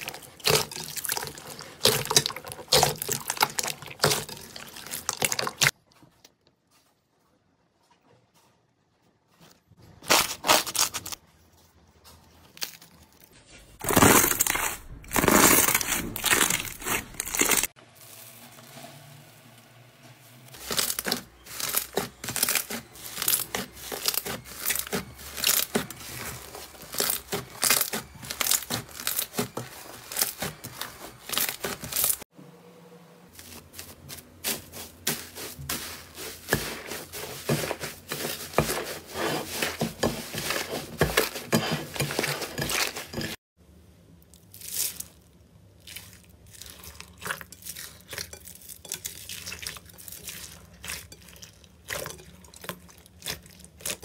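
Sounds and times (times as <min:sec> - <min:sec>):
slime squishing and crackling: 0:13.8 - 0:17.8, 0:20.6 - 0:32.2, 0:44.4 - 0:54.0
slime squelches: 0:44.3 - 0:54.0.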